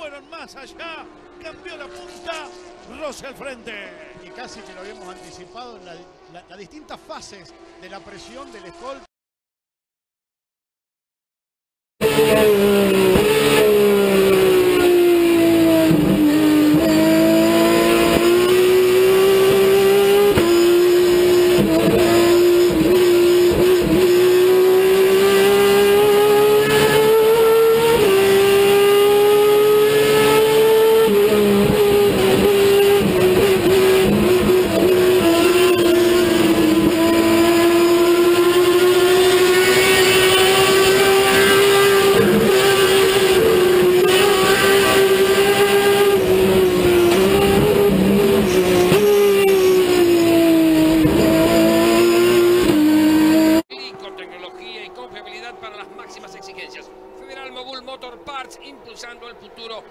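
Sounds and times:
race car engine at high revs: 0.0s - 9.1s, 12.0s - 59.9s.

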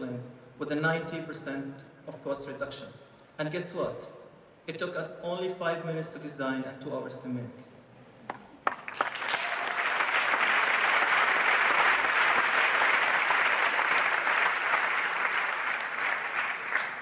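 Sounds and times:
crowd applause: 8.6s - 17.0s.

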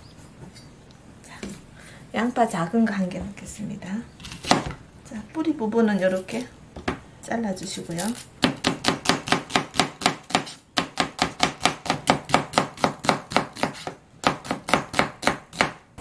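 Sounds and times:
knife chopping onion on board: 8.1s - 16.0s.

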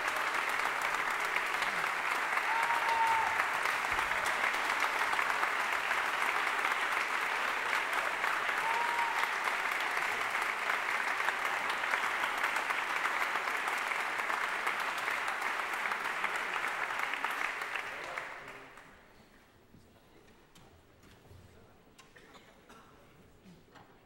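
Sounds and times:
audience applauding: 0.0s - 19.0s.

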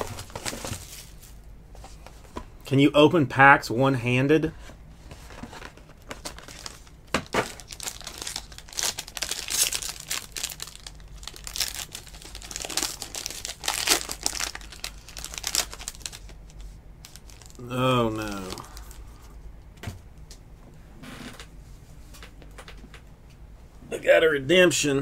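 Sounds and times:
foil wrapper crinkling and tearing: 0.0s - 1.4s, 5.6s - 19.0s.

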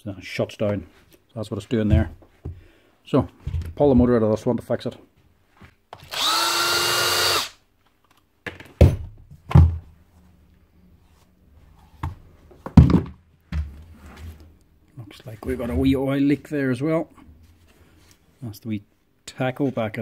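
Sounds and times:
cordless drill motor spinning: 6.1s - 7.6s.

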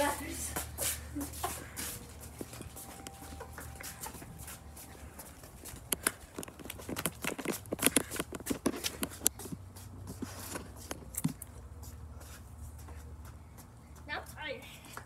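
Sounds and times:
footsteps on concrete: 0.0s - 15.0s.

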